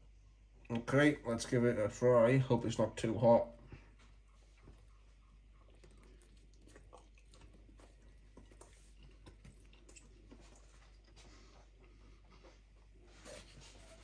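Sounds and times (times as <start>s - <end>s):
faint chewing: 3.6s - 14.0s.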